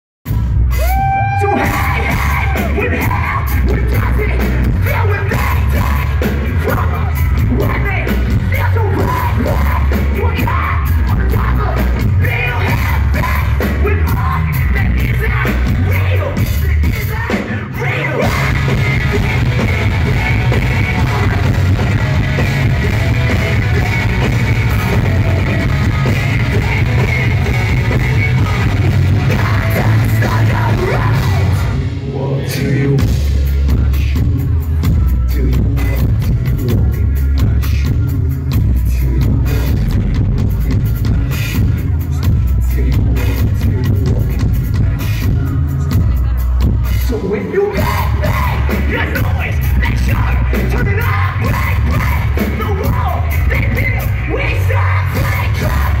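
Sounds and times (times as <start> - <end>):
drums: 0.2 - 56.0
live rock band playing: 0.3 - 56.0
person yelling vocals: 0.8 - 3.5
electric guitar: 17.3 - 33.1.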